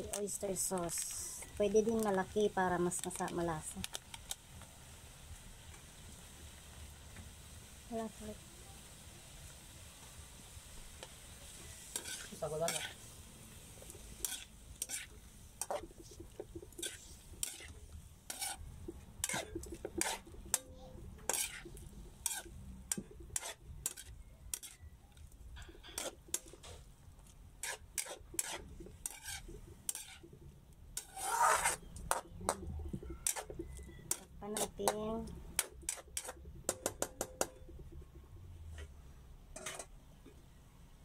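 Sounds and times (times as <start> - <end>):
faint sizzle: 0.0 - 41.0
metal spatula scraping a wok: 11.0 - 38.0, 39.5 - 40.0.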